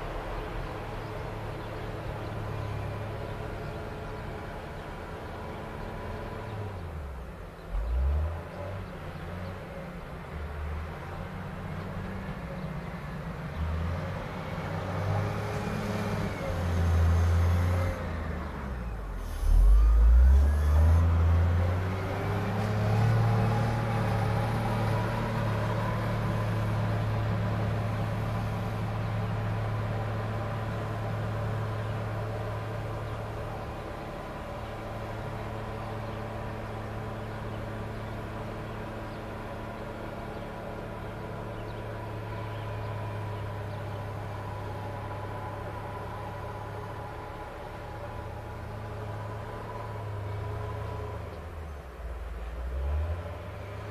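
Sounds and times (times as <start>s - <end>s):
wheel loader diesel engine revving: 10.3s - 53.9s.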